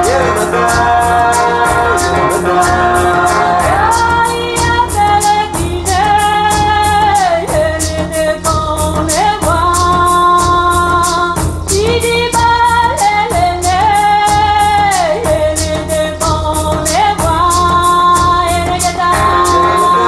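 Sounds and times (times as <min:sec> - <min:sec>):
person singing long sliding notes: 0:00.0 - 0:06.5, 0:19.1 - 0:20.0
bass line: 0:00.0 - 0:20.0
steady beat: 0:00.0 - 0:20.0.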